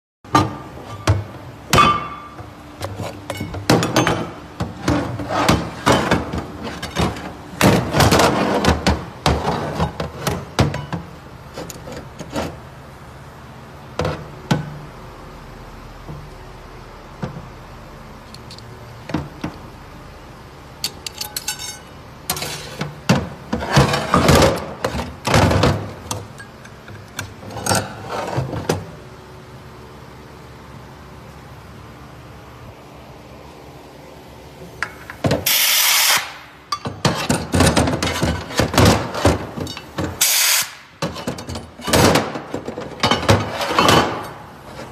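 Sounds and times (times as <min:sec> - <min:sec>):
metal parts clanking: 0:20.8 - 0:22.8.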